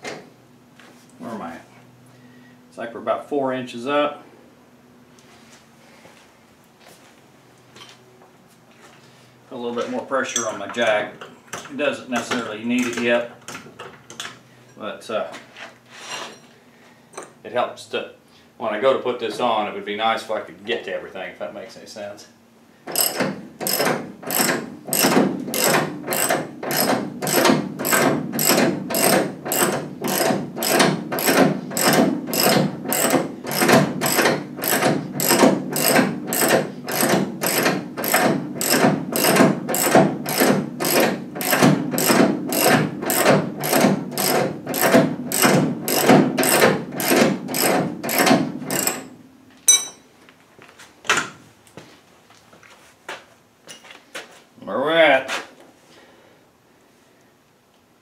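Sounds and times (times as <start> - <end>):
ratchet clicking: 22.9 - 49.1.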